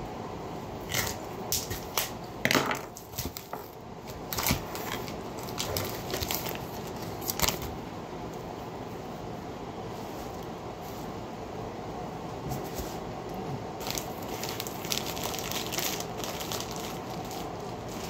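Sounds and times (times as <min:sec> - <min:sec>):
plastic packaging crinkling: 0:03.0 - 0:07.8, 0:13.8 - 0:18.0.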